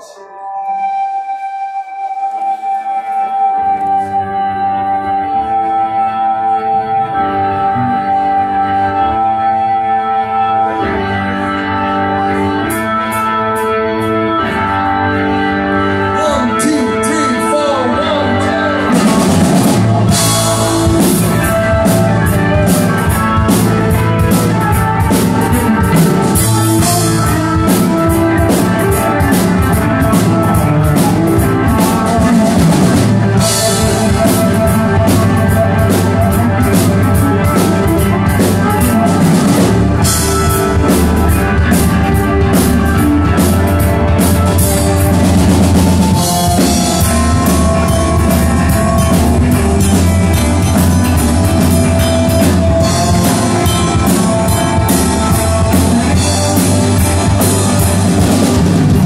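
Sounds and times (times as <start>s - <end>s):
electric guitars: 0.0s - 59.0s
electric bass: 2.6s - 59.0s
drum kit: 16.2s - 59.0s.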